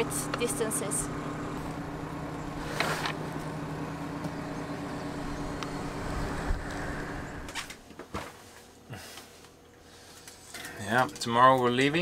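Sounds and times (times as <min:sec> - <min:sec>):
motor humming: 0:00.0 - 0:07.8.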